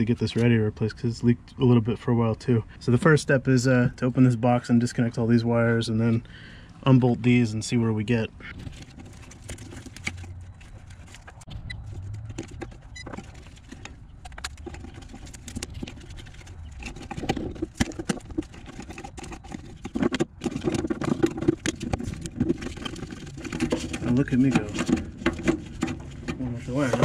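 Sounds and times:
hand tools and metal parts clattering: 0:08.4 - 0:27.0.

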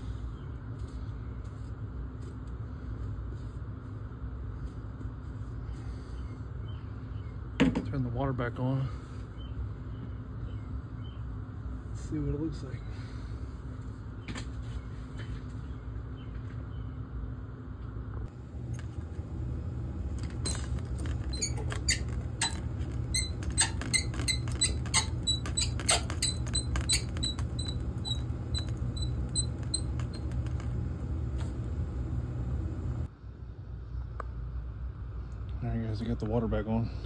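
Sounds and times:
steady low rumble: 0:08.9 - 0:37.0.

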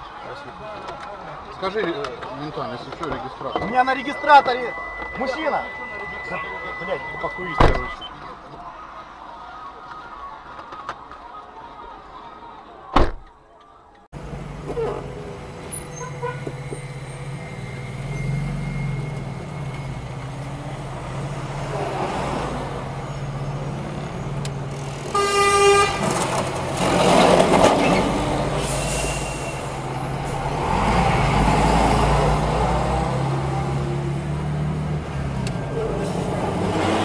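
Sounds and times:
car engine and road noise: 0:00.0 - 0:11.2, 0:14.0 - 0:37.0
passing traffic: 0:00.0 - 0:13.3, 0:13.9 - 0:37.0
car horn toot: 0:03.6 - 0:08.0, 0:15.8 - 0:16.6, 0:25.1 - 0:26.2.

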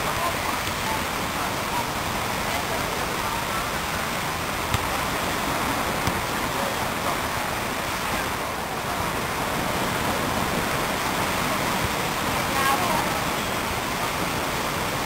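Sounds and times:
wind: 0:00.0 - 0:15.0
football being kicked: 0:04.7 - 0:05.2, 0:06.0 - 0:06.4.

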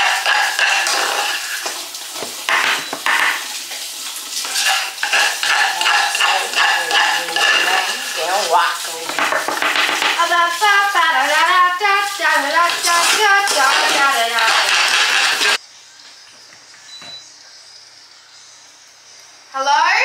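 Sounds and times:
spatula scraping saucepan: 0:00.0 - 0:15.6.

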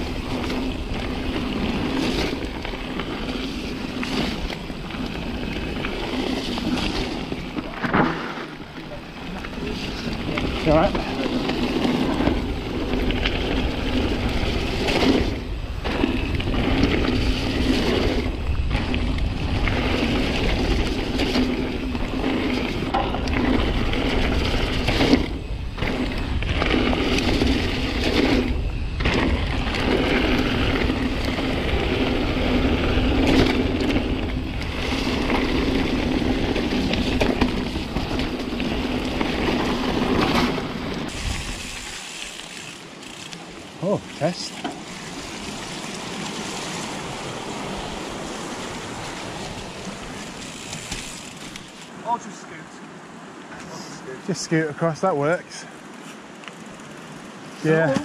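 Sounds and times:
wind buffeting camera: 0:00.0 - 0:43.8
bike rattling: 0:00.0 - 0:58.0
bike tyres rolling over gravel: 0:00.0 - 0:58.0.

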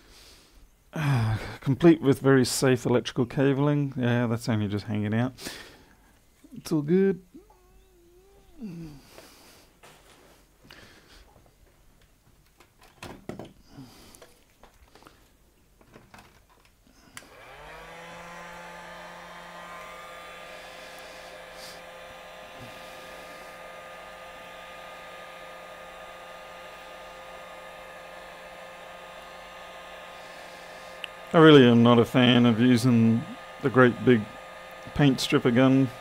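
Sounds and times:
heat gun fan whine and hiss: 0:05.4 - 0:11.5, 0:16.8 - 0:36.0.

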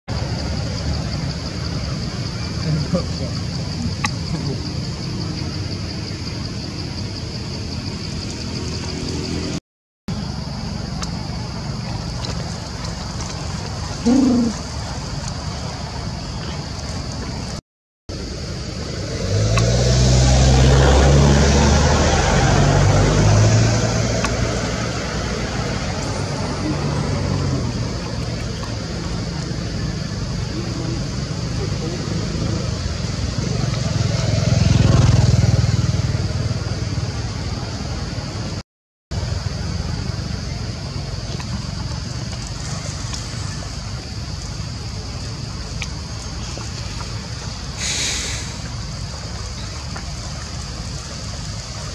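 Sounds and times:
vehicle engine running: 0:00.2 - 0:51.9
steady high hiss: 0:46.7 - 0:51.9.

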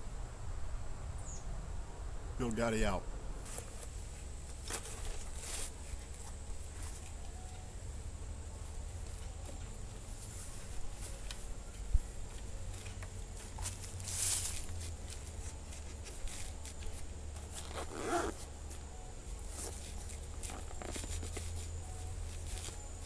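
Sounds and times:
zipper being pulled: 0:17.5 - 0:18.5.

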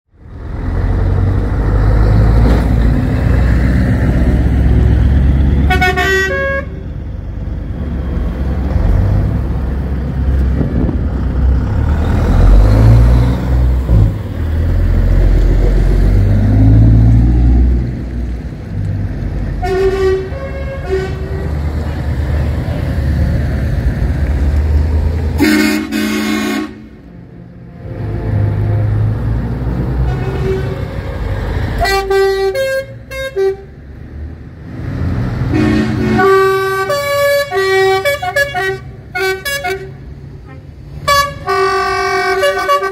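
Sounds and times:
truck diesel engines running: 0:00.1 - 0:42.9
air horn blasts: 0:05.6 - 0:06.8, 0:19.6 - 0:21.5, 0:25.4 - 0:27.0, 0:31.8 - 0:33.7, 0:35.5 - 0:42.9.

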